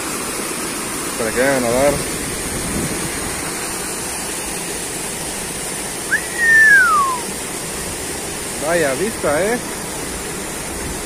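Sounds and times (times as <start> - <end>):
waterfall rushing into pool: 0.0 - 11.0
falling whistle: 6.1 - 7.3.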